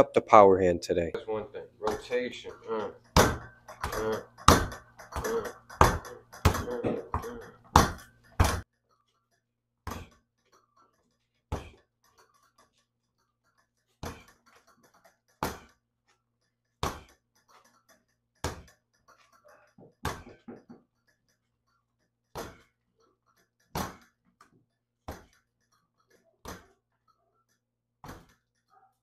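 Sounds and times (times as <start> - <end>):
punches slapping a reflex bag: 3.1 - 8.7, 9.8 - 10.2, 11.5 - 11.9, 14.0 - 14.5, 15.4 - 15.8, 16.8 - 17.2, 18.4 - 18.8, 19.8 - 20.8, 22.3 - 22.8, 23.7 - 24.2, 25.0 - 25.4, 26.4 - 26.8, 28.0 - 28.4.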